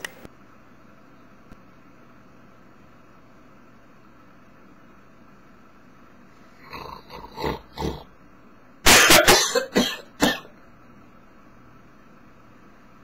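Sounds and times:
man coughing: 8.9s - 10.6s.

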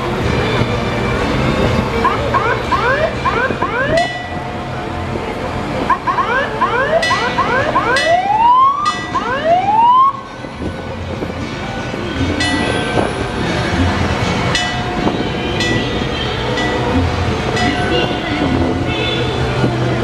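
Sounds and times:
engine rumbling: 0.0s - 20.0s
fire engine siren whooping: 2.0s - 4.2s, 5.9s - 10.3s.

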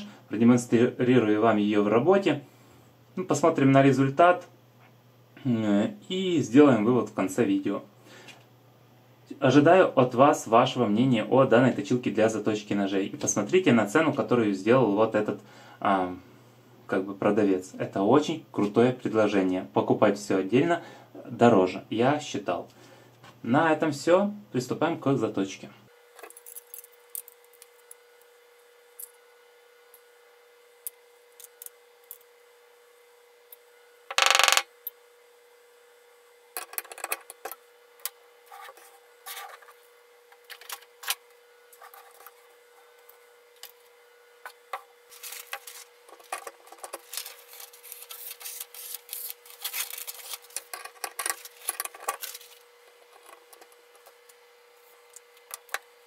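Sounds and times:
faint steady hum: 0.0s - 56.0s
metal parts clicking and scraping: 26.2s - 27.9s, 45.1s - 54.1s.

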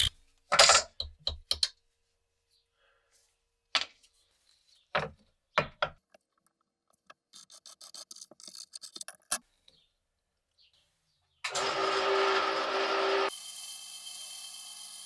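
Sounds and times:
scribe scratching metal: 7.1s - 9.4s.

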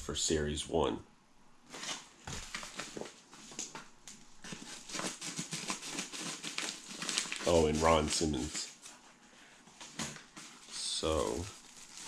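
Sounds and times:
paper crackling: 1.7s - 9.0s, 9.8s - 12.0s.

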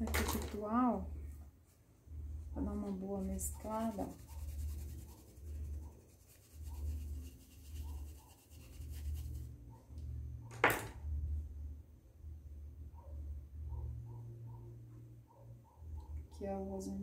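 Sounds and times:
paintbrush scrubbing cloth: 2.6s - 9.6s.

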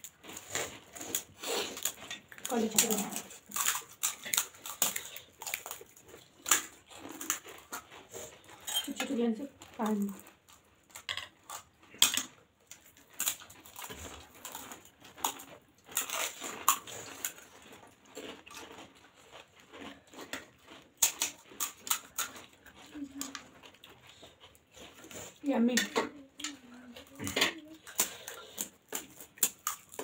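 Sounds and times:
crisp shells crunching: 0.0s - 9.0s, 9.6s - 23.8s
wet chewing: 0.0s - 30.0s.

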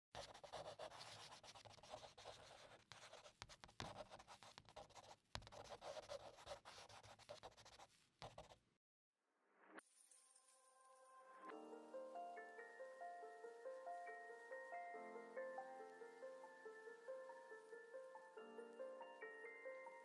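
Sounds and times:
drawing tool scratching paper: 0.1s - 8.6s.

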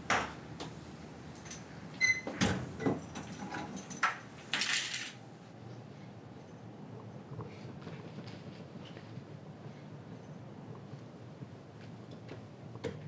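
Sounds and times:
keys jangling: 1.4s - 1.7s, 3.0s - 5.2s.

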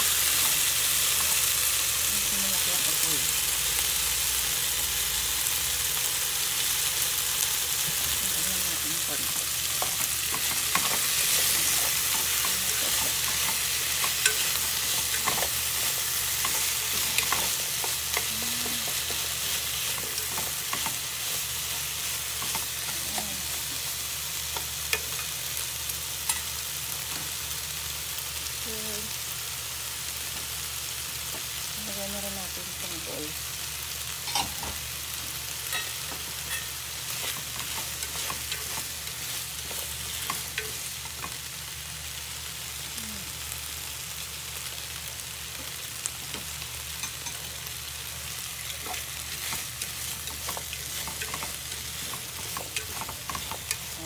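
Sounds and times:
food sizzling in a pan: 0.0s - 54.0s
chopsticks scraping and clicking: 9.7s - 23.9s, 35.7s - 41.4s, 48.6s - 54.0s.

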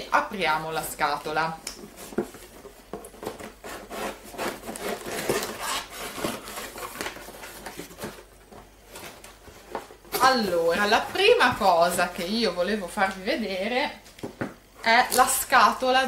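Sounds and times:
cardboard rubbing and scratching: 1.9s - 11.7s.

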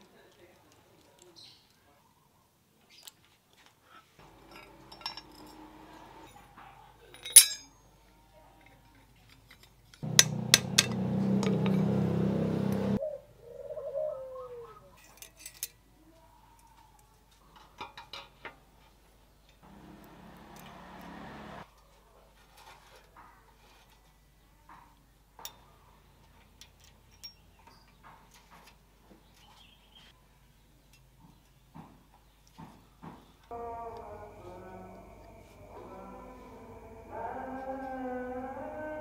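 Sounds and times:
bicycle parts clinking: 4.3s - 6.4s, 7.0s - 7.8s
low hum: 10.0s - 13.0s, 19.6s - 21.6s, 33.5s - 38.8s.

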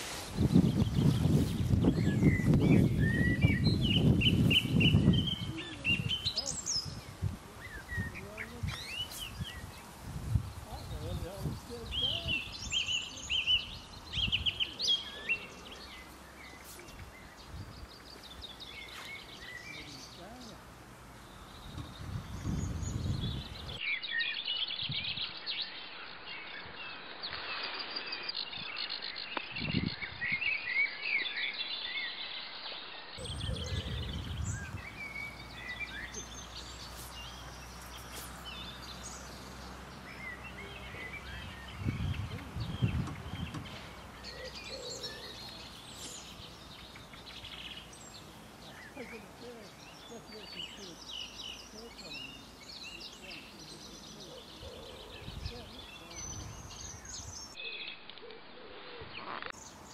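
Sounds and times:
songbirds chirping and singing: 0.0s - 59.9s.

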